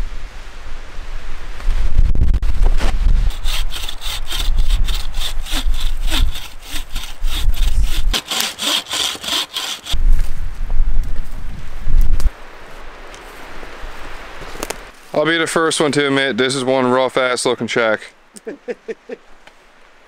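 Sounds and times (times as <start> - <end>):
hand saw cutting through log: 3.3 - 10.0.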